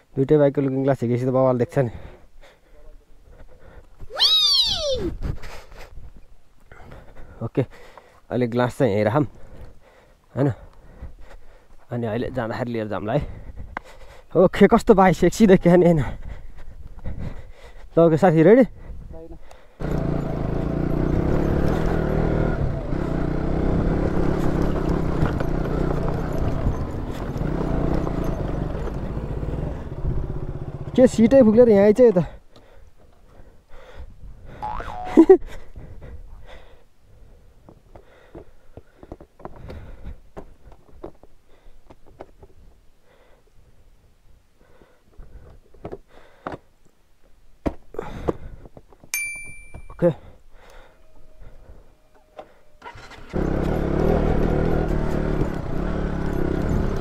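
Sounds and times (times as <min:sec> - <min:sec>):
motorcycle engine running: 0:19.8 - 0:31.0, 0:52.9 - 0:57.0
knocks on stony dirt track: 0:23.9 - 0:29.3, 0:53.3 - 0:57.0
short high beep: 0:49.2 - 0:50.0.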